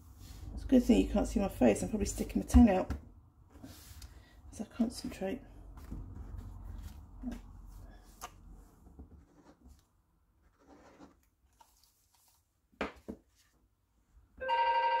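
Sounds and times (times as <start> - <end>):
paper and card rustling: 10.6 - 12.5
telephone ringing: 14.4 - 15.0.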